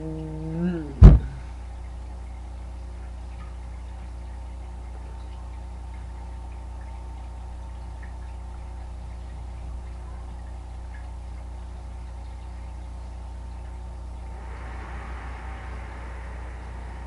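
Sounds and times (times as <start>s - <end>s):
low electrical hum: 0.0s - 17.0s
loud sharp thump: 1.0s - 1.4s
faint high whine: 14.0s - 17.0s.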